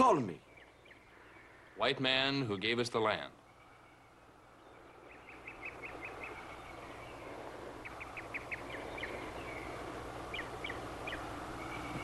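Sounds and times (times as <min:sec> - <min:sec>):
soft hiss: 0:00.0 - 0:12.0.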